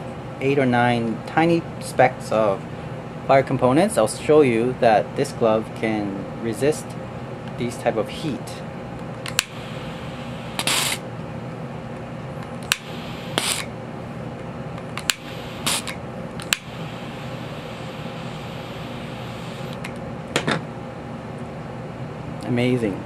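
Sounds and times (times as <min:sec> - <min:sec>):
torch lighter clicking: 0:09.3 - 0:09.6, 0:10.6 - 0:11.0, 0:12.6 - 0:13.7, 0:15.0 - 0:16.7.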